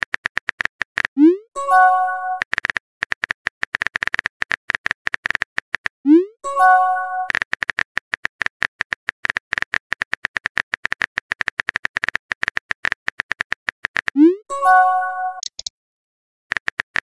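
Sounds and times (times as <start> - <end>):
keyboard tap clicks: 15.4 - 15.7.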